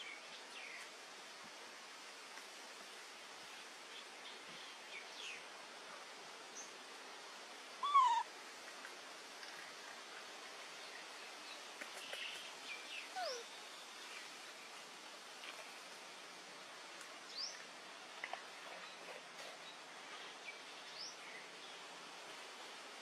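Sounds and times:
steady hiss: 0.0 - 23.0
baby monkeys calling: 7.8 - 8.3, 13.2 - 13.4.

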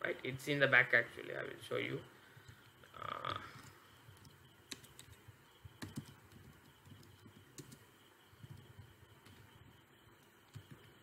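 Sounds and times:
faint keyboard typing: 2.3 - 11.0.

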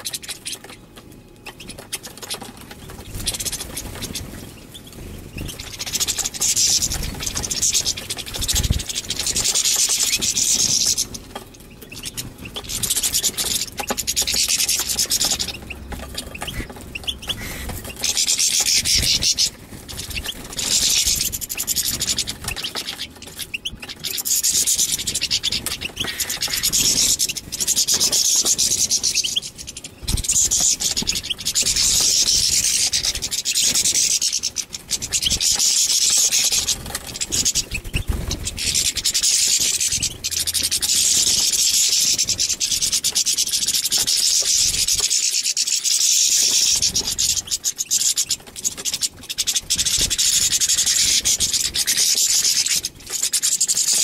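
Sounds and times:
finch twittering song: 0.0 - 54.0.

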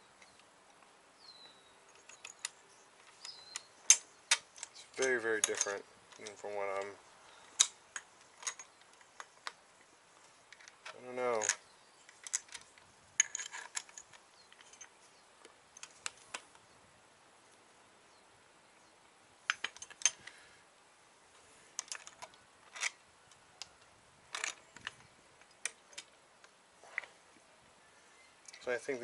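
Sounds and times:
metal parts clicking and clinking: 1.9 - 9.6, 10.2 - 15.0, 19.5 - 20.4, 21.8 - 26.1.

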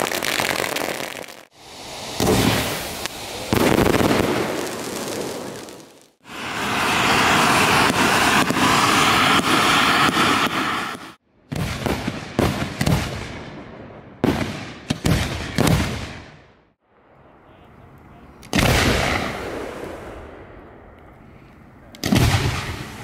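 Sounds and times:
firework fountains hissing: 0.0 - 11.2
firework bangs: 0.0 - 13.5, 14.2 - 16.3, 18.5 - 20.7, 22.0 - 23.0.

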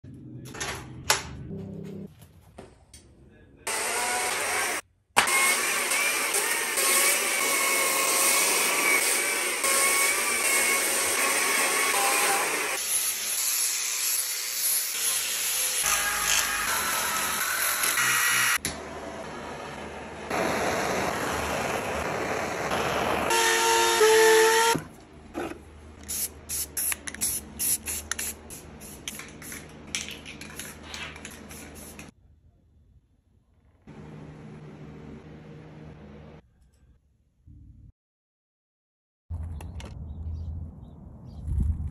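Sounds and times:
blowtorch flame hissing: 19.5 - 23.4
chainsaw cutting log: 20.3 - 24.8
spray paint can spraying: 26.0 - 32.1.

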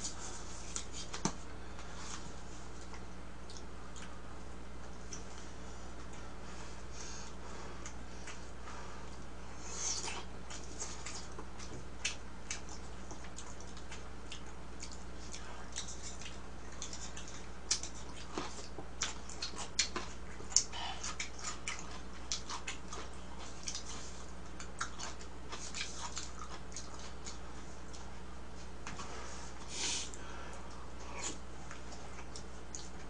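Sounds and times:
mouth smacks and chewing: 2.8 - 4.2, 9.1 - 28.1, 30.7 - 33.0.

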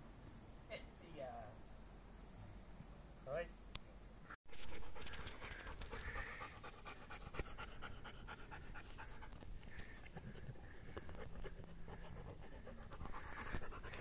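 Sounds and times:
dog panting: 4.6 - 14.0.

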